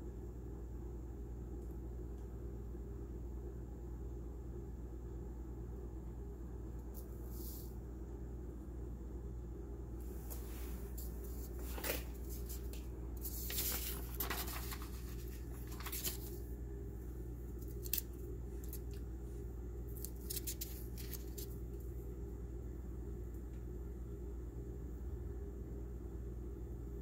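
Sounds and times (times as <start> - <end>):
steady low hum: 0.0 - 27.0
paper rustling and crinkling: 10.2 - 16.5, 17.6 - 19.0, 19.9 - 21.6.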